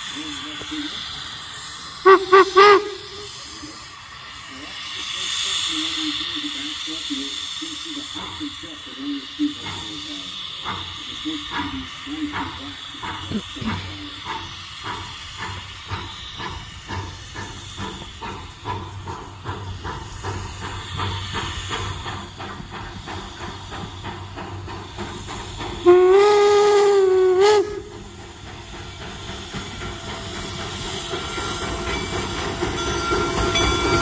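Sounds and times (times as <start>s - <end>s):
hiss of steam: 0.0s - 34.0s
steam locomotive chuffing: 0.0s - 34.0s
steam whistle blast: 2.0s - 3.4s, 25.8s - 27.9s.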